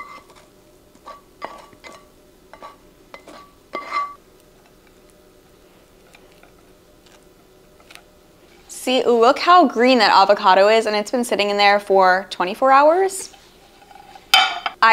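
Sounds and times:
spatula scraping frying pan: 0.0 - 4.2, 13.2 - 14.7
knocks and clinks on plate: 14.4 - 14.8.

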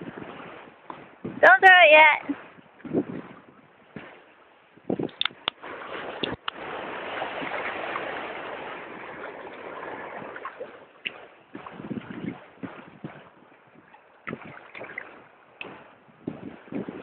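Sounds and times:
dogs swimming water splashing: 5.5 - 15.8.

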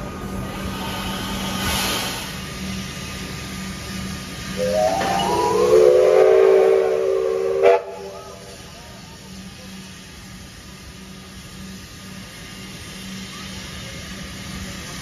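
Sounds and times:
steam locomotive whistle blast: 4.6 - 8.5.

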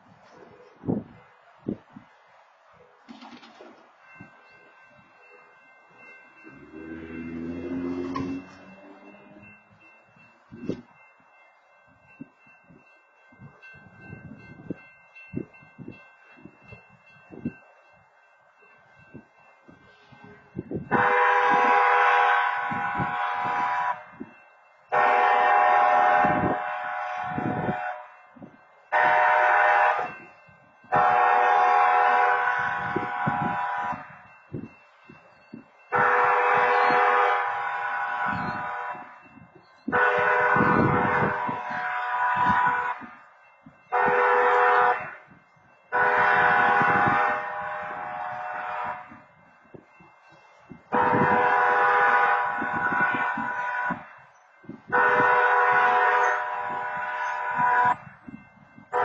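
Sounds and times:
railroad crossing horn blasts: 6.4 - 9.8, 20.2 - 34.6, 35.9 - 49.9, 50.8 - 59.0.

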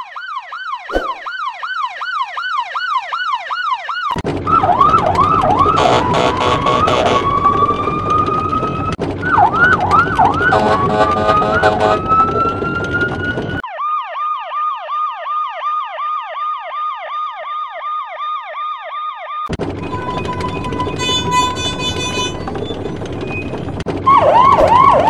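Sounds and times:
police siren yelp: 0.0 - 21.4, 24.0 - 25.0
noisy rising horn-like siren: 0.9 - 1.9, 4.5 - 15.2, 24.0 - 25.0.

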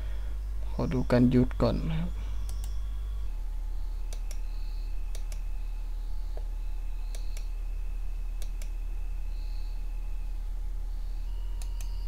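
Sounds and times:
low electrical hum: 0.0 - 12.0
computer mouse clicks: 2.4 - 2.8, 4.1 - 5.5, 6.3 - 7.5, 8.4 - 8.8, 11.6 - 12.0.

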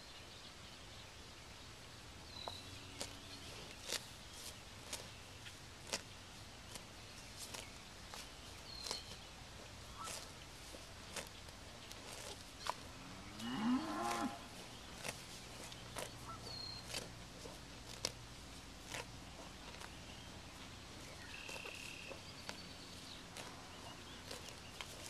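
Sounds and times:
grass being torn off: 3.0 - 5.1, 5.8 - 20.2, 21.1 - 25.0
cow mooing: 12.9 - 14.6.

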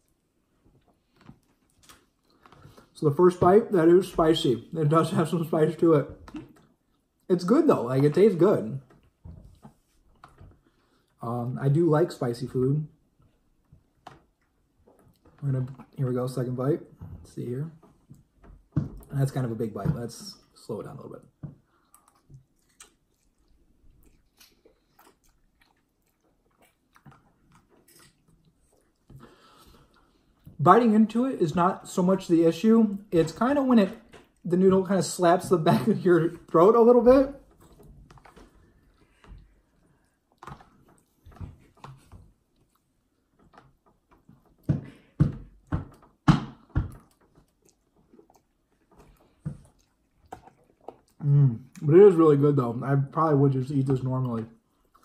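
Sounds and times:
faint chewing of noodles: 21.6 - 30.6, 46.9 - 51.9, 54.3 - 55.0.

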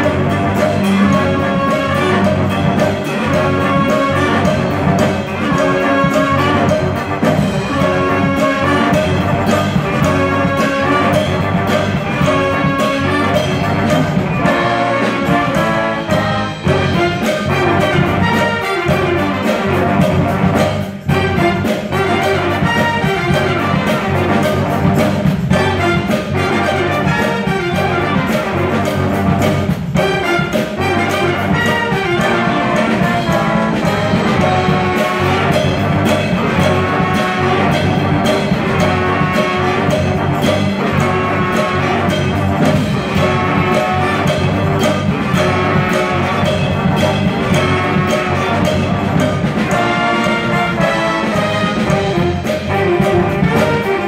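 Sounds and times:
jazz big band horn riff: 0.0 - 54.0.

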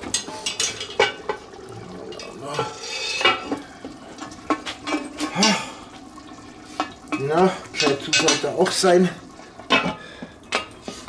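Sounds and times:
cast iron lid clanking on pot: 0.0 - 1.5, 3.1 - 3.6, 4.2 - 5.6, 6.8 - 8.8, 9.6 - 10.8.

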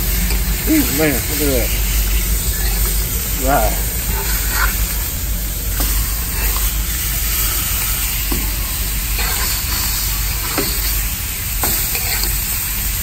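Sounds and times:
meat sizzling on a griddle: 0.0 - 13.0.

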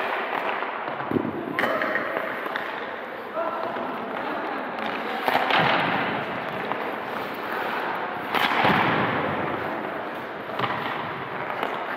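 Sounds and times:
hockey puck cracks echoing: 0.0 - 3.0, 8.2 - 9.7.

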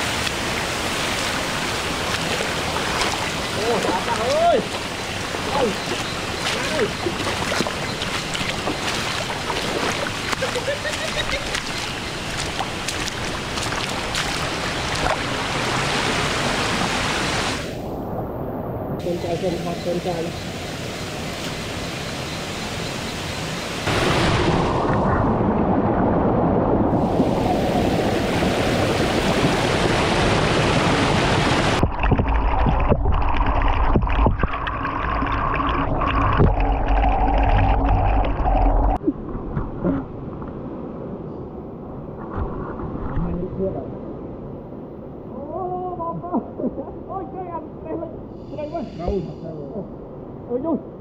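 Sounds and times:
small water splashes: 0.0 - 17.7, 28.0 - 38.8
waterfall rushing: 0.0 - 17.8, 19.0 - 26.0, 26.9 - 33.9.

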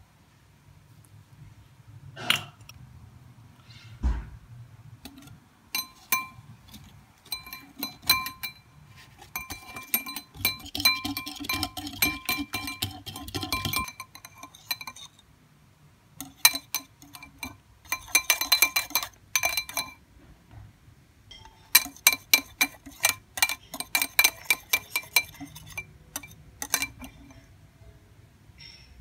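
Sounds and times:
whisk clinking against glass bowl: 5.1 - 15.2, 16.2 - 20.0, 21.3 - 27.4.

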